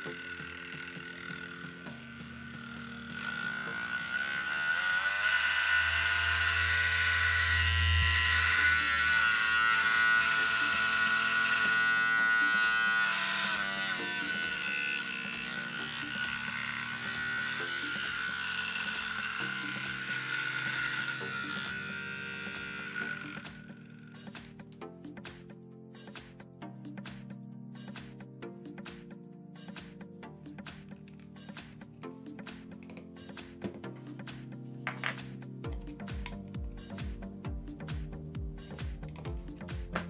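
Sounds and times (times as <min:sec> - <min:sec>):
electric motor whine: 0:00.0 - 0:24.5
background music: 0:00.0 - 0:40.0.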